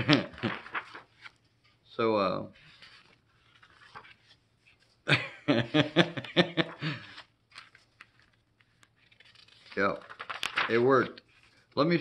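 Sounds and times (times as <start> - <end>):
man laughing: 0.0 - 0.7, 5.1 - 7.2.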